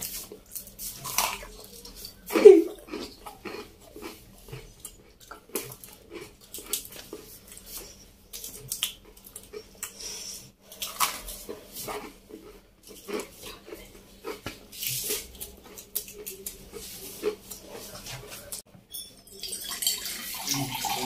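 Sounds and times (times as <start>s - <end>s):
crunching and chewing toast: 0.0s - 18.6s.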